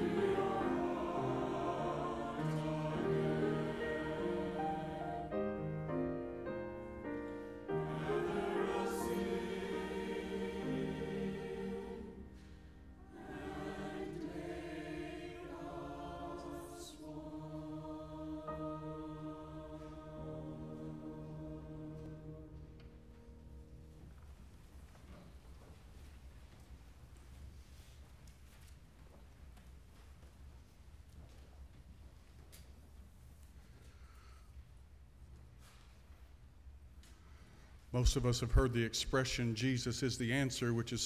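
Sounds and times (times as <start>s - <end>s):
church choir singing: 0.0s - 24.1s, 37.9s - 41.0s
piano accompaniment: 0.0s - 24.1s.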